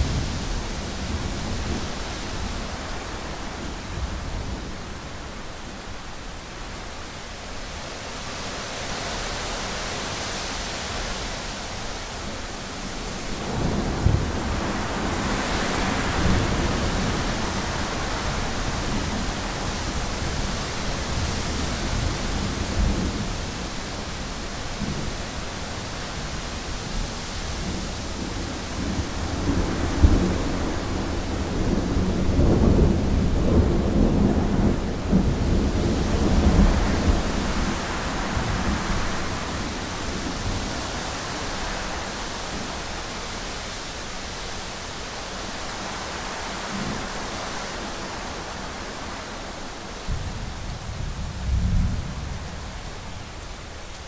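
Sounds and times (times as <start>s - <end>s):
steady rain hiss: 0.0s - 54.0s
rolling thunder: 50.1s - 53.2s.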